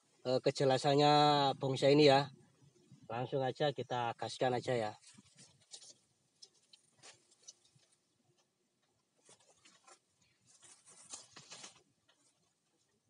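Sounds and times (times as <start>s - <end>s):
dry leaves crackling and rustling: 9.2s - 11.8s.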